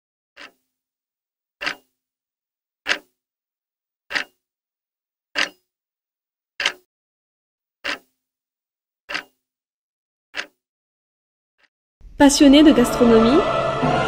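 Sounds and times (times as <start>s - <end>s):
clock-like ticks: 0.4s - 0.7s, 1.6s - 1.9s, 2.9s - 3.1s, 4.1s - 4.4s, 5.4s - 5.7s, 6.6s - 6.9s, 7.8s - 8.2s, 9.1s - 9.4s, 10.4s - 10.6s.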